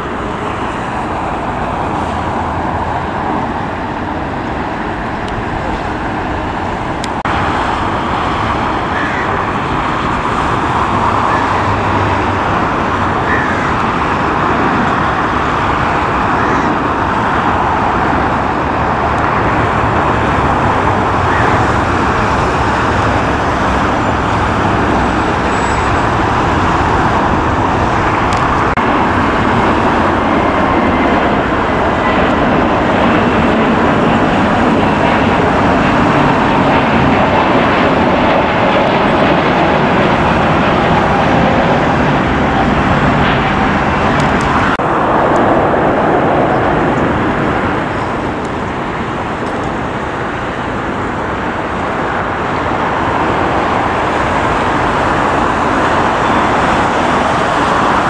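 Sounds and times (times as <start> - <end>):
jet engine roaring at takeoff: 0.0 - 58.0.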